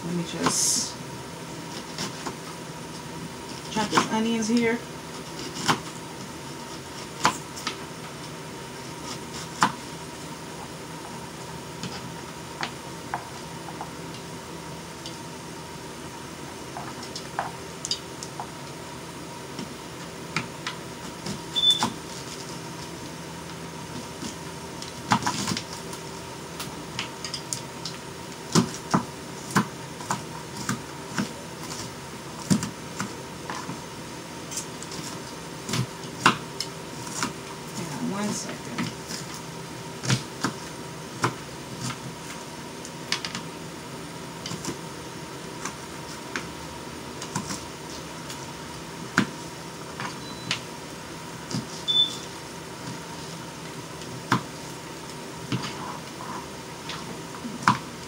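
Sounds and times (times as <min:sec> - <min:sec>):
background hum with faint whine: 0:00.0 - 0:58.0
knife chopping on cutting board: 0:05.4 - 0:05.9.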